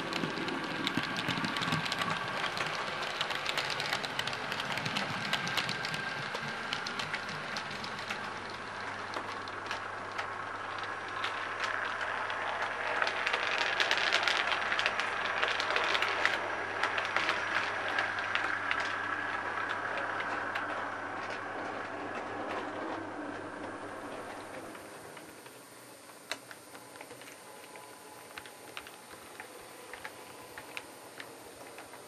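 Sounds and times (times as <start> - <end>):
model train running past: 0.0 - 32.0.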